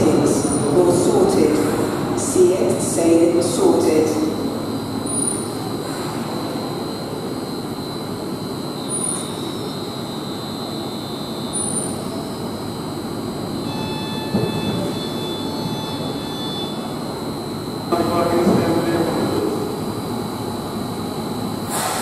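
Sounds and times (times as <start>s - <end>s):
electric train humming: 0.0s - 21.8s
faint whining tones: 4.3s - 21.2s.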